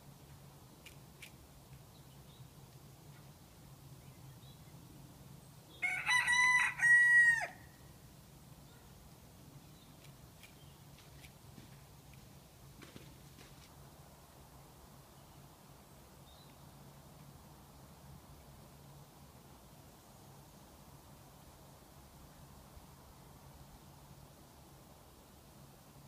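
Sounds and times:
rooster crowing: 5.8s - 7.8s.

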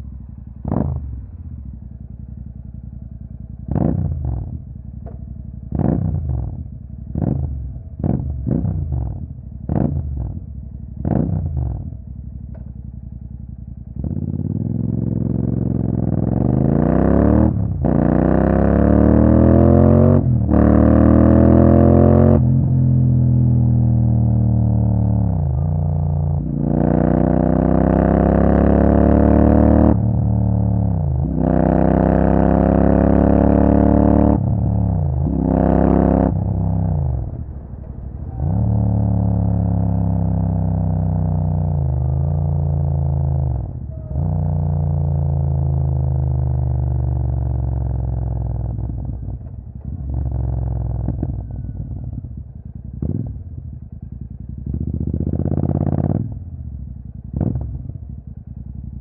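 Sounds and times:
motorcycle engine accelerating: 0.0s - 59.0s.

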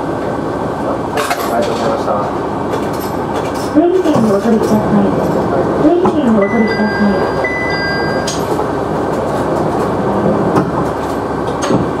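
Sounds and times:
thin high tone: 6.4s - 8.5s.

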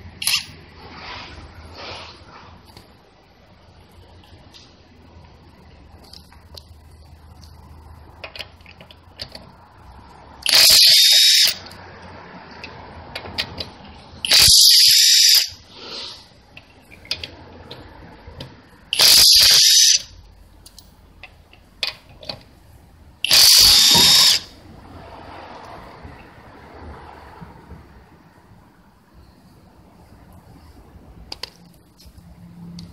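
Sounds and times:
impact wrench hammering: 23.2s - 24.5s.

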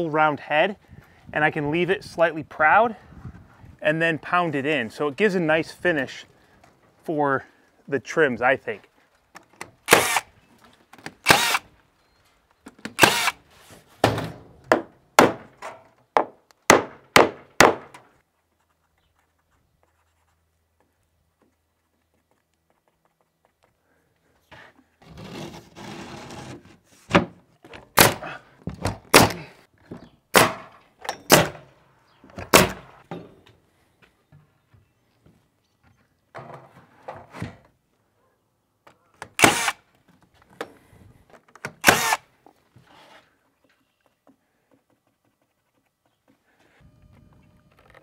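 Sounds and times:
nail gun shots: 9.8s - 10.3s, 11.2s - 11.6s, 13.0s - 13.4s, 14.1s - 15.6s, 16.7s - 18.0s, 28.0s - 28.3s, 29.1s - 29.4s, 30.3s - 31.7s, 32.5s - 32.9s, 39.3s - 39.8s, 41.8s - 42.2s.

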